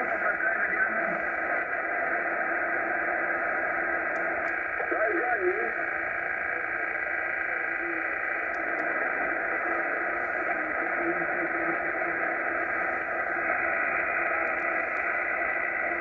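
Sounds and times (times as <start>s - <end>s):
radio static and hiss: 0.0s - 16.0s
faint clicks: 4.1s - 4.6s, 8.4s - 9.0s, 14.4s - 15.1s.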